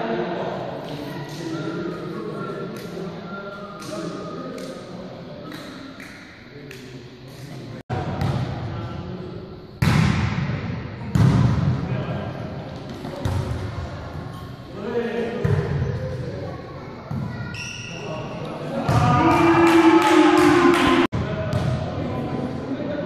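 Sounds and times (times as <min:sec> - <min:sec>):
players calling out: 0:18.8 - 0:21.1.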